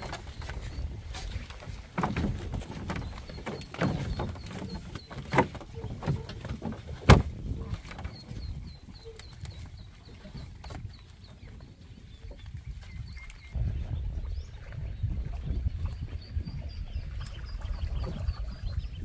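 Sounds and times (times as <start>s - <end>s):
knocks and rustling: 0.0s - 8.5s.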